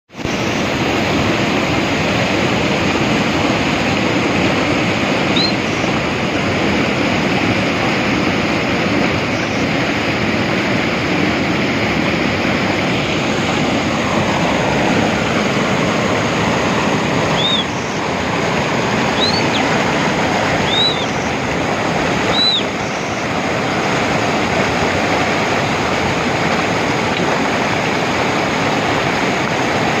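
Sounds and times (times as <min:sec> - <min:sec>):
stream rushing over boulders: 0:00.1 - 0:30.0
faint high chirps: 0:05.3 - 0:05.9, 0:17.3 - 0:18.0, 0:19.1 - 0:19.7, 0:20.6 - 0:21.3, 0:22.3 - 0:23.2.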